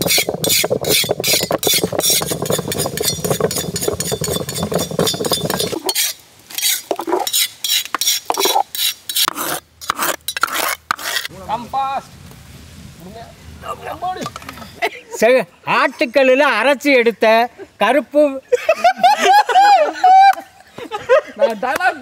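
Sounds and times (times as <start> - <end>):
pulp scraping and slopping: 0.0 - 11.3
wet squelching grinding: 0.0 - 11.3.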